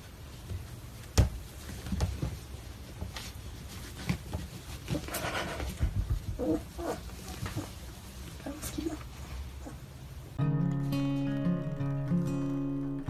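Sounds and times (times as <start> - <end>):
puppies rustling on towel: 0.0 - 10.4.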